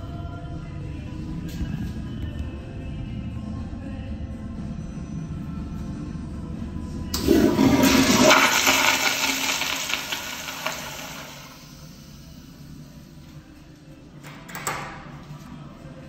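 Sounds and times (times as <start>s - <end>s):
toilet flushing: 7.2s - 12.5s.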